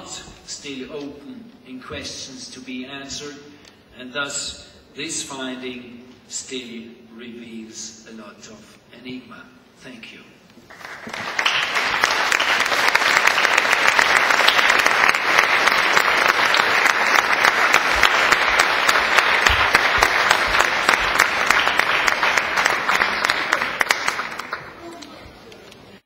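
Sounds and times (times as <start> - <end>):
audience applauding: 10.7 - 25.0.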